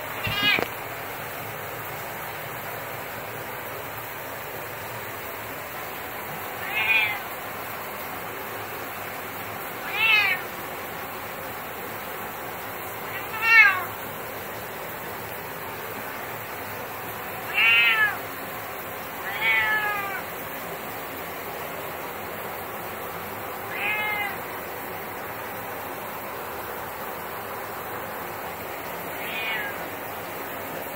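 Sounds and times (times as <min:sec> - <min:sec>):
steady hiss: 0:00.0 - 0:30.9
cat meowing: 0:00.1 - 0:00.8, 0:06.5 - 0:07.3, 0:09.8 - 0:10.5, 0:13.1 - 0:14.0, 0:17.5 - 0:18.3, 0:19.2 - 0:20.3, 0:23.7 - 0:24.5, 0:29.1 - 0:29.8.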